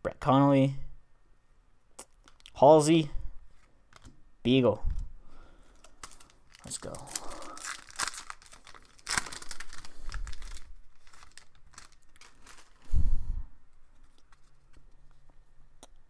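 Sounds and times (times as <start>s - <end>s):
wrapper tearing and crinkling: 5.8s - 13.0s.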